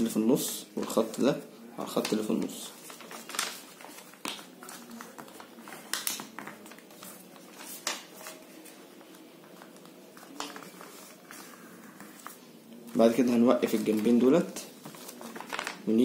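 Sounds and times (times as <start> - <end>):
paper rustling and crinkling: 0.8 - 16.0
paper crackling as folds pressed: 2.0 - 12.4, 13.7 - 16.0.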